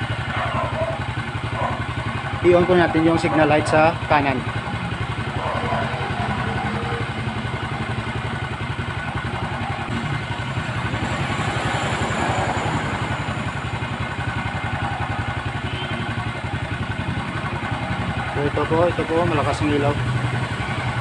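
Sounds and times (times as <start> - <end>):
motorcycle engine idling: 0.0 - 21.0.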